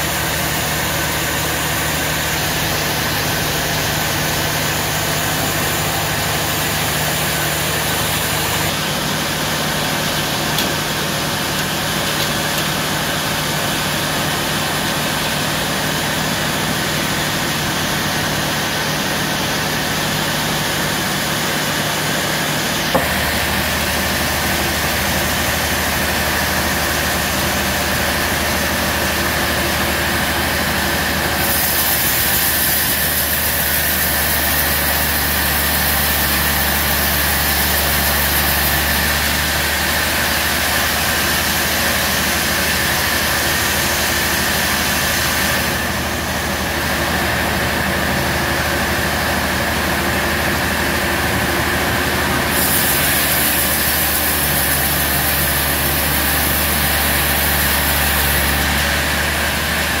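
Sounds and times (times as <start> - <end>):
sawmill mechanical drone: 0.0 - 60.0
high hiss of saw blade: 31.4 - 38.9, 52.5 - 59.0.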